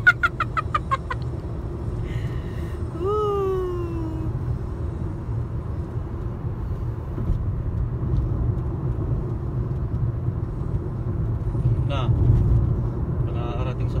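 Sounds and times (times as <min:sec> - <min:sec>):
road and engine noise in car: 0:00.0 - 0:14.0.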